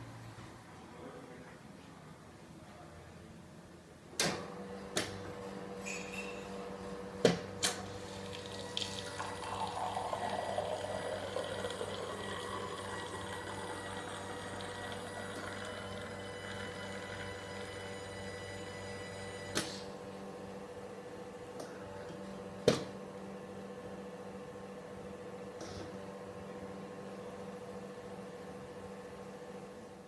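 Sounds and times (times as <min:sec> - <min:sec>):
coffee machine pump humming: 0:04.8 - 0:20.2
coffee pouring into mug: 0:07.8 - 0:18.1.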